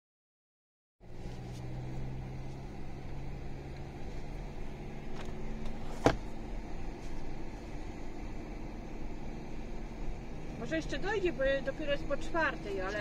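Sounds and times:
car engine and road noise: 1.0s - 13.0s.

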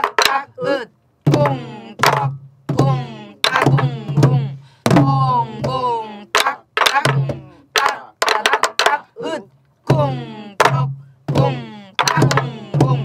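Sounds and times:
stick strikes on wooden drum shell: 6.4s - 9.0s, 10.6s - 13.0s.

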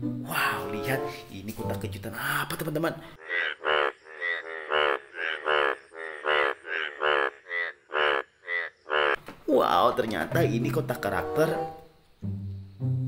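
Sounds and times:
bullfrog croaking: 2.2s - 9.8s.

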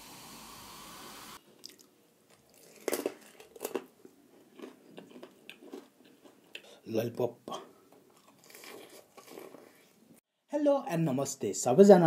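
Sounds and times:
cola pouring and fizzing: 1.6s - 1.9s
crunching bites: 1.6s - 6.4s, 8.2s - 9.6s
chewing and mouth clicks: 1.6s - 6.8s, 8.1s - 9.8s.

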